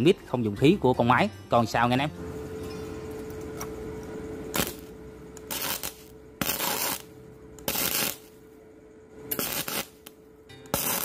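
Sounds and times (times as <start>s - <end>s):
welding arc crackling: 4.4s - 8.4s, 9.3s - 11.0s.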